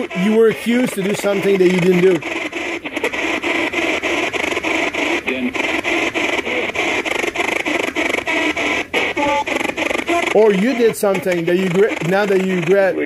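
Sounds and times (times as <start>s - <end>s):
choppy radio static: 0.0s - 13.0s
snatch of radio broadcast: 0.0s - 13.0s.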